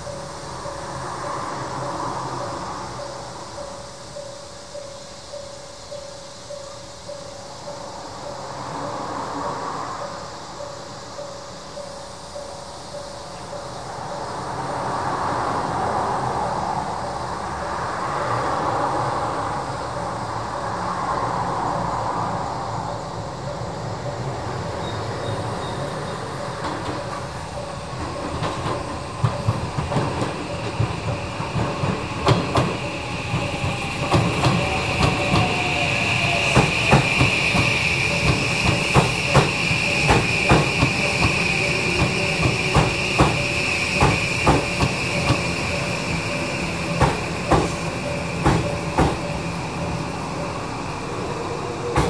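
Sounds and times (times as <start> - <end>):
high wheel squeal: 0.0 - 52.0
train wheels clacking over rail joints: 0.0 - 52.0.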